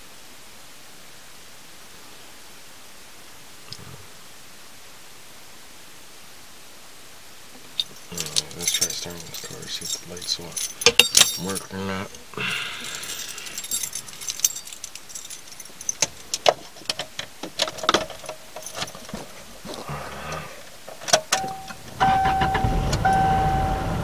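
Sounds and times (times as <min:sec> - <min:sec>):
car keys jangling: 0:07.7 - 0:19.8, 0:20.9 - 0:23.6
dashboard warning chime beeping: 0:21.3 - 0:24.0
car engine running: 0:21.4 - 0:24.0.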